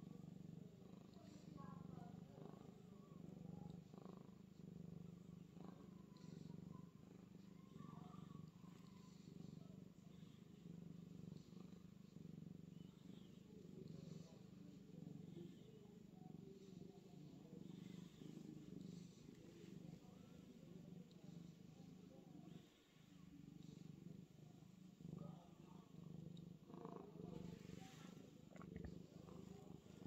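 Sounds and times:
cat purring: 0:00.0 - 0:30.0.

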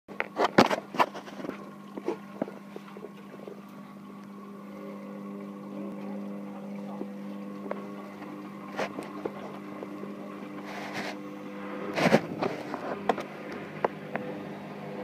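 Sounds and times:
washing machine motor hum: 0:00.1 - 0:15.0.

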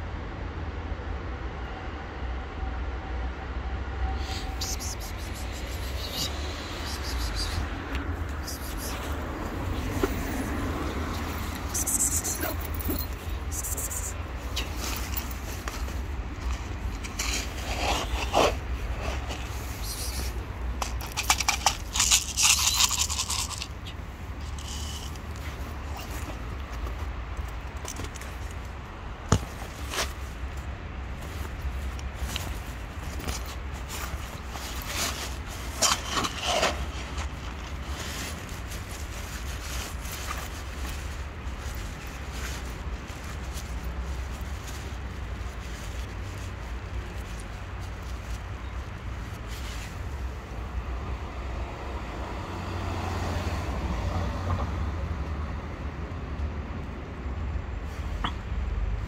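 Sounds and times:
street background noise: 0:00.0 - 0:59.0
plastic bag crinkling: 0:20.9 - 0:26.2.

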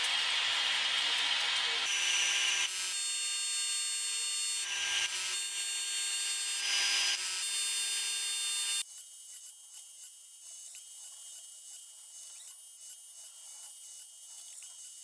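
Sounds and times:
steady whine: 0:00.0 - 0:07.2
arc welding bursts: 0:00.0 - 0:08.8.

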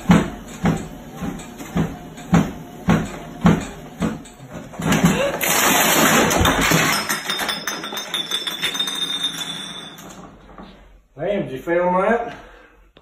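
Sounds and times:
bare feet thudding on treadmill: 0:00.0 - 0:05.3
loud crash and clattering: 0:04.8 - 0:10.3.

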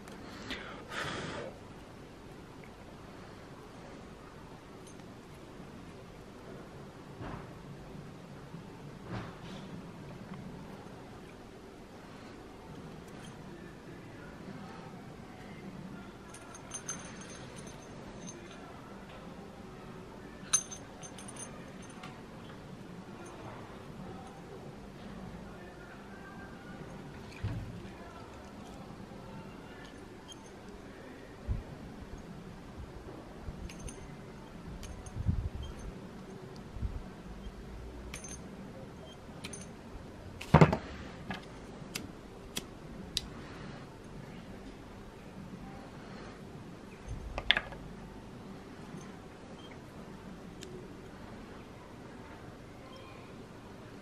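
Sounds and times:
ringing metal clink: 0:16.2 - 0:18.8, 0:20.4 - 0:22.1, 0:29.4 - 0:30.8, 0:33.6 - 0:36.4, 0:37.4 - 0:39.8
metal tools clicking on wood: 0:20.5 - 0:22.1, 0:33.7 - 0:34.1, 0:38.1 - 0:38.5, 0:39.4 - 0:39.7
metal tool set down on wooden table: 0:40.5 - 0:40.9, 0:47.4 - 0:47.8.

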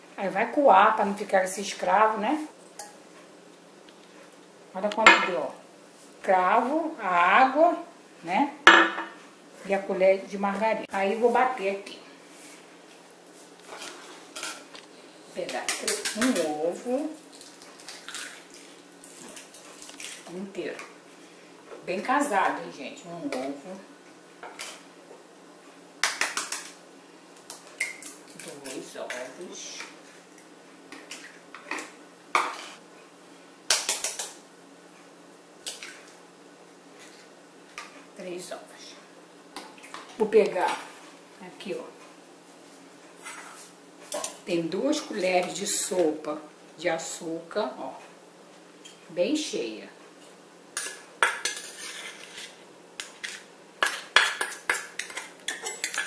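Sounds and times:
metal spoon clinking against bowls: 0:53.8 - 0:56.0.

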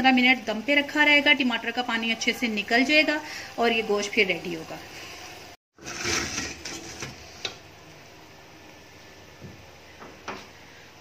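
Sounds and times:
metal pot scraping and clattering: 0:05.8 - 0:07.6.

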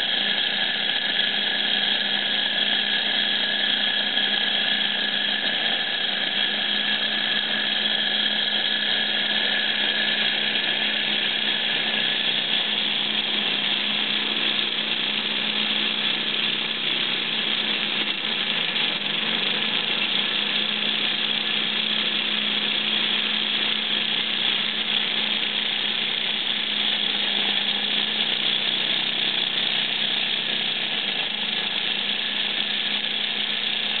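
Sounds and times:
small engine whirring: 0:00.0 - 0:34.0.

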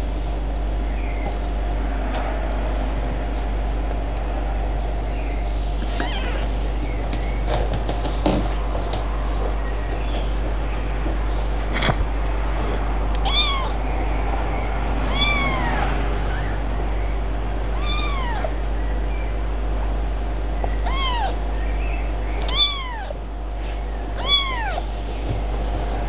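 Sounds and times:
kitten meowing: 0:05.9 - 0:06.5, 0:13.2 - 0:13.8, 0:15.0 - 0:16.5, 0:17.7 - 0:18.6, 0:20.8 - 0:21.4, 0:22.4 - 0:23.2, 0:24.2 - 0:24.9.

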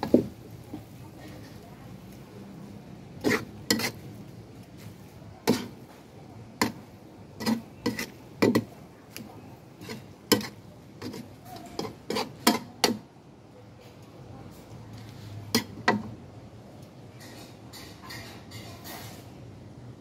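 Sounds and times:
spatula clanking against metal wok: 0:03.2 - 0:04.0, 0:05.4 - 0:05.9, 0:06.6 - 0:13.1, 0:15.5 - 0:16.1, 0:17.2 - 0:19.2.

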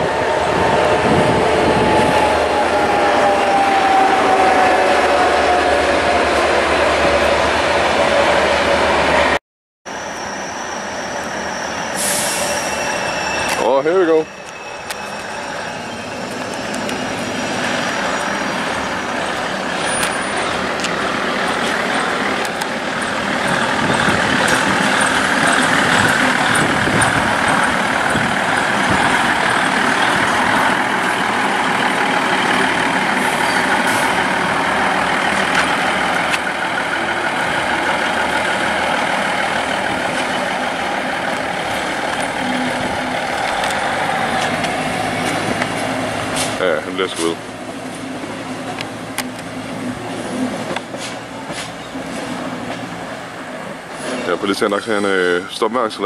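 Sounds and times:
diesel train engines running: 0:00.0 - 0:56.0.

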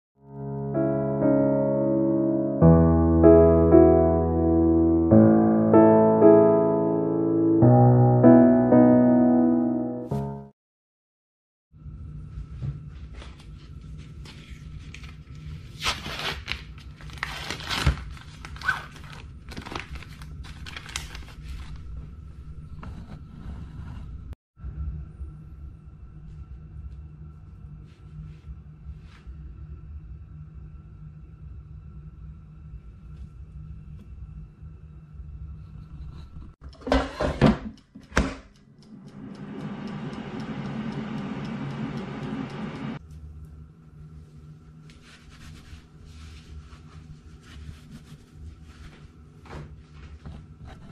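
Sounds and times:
plastic film crinkling and tearing: 0:14.9 - 0:21.9
mechanical timer ticking: 0:37.8 - 0:43.0
air fryer fan running: 0:38.1 - 0:43.1.

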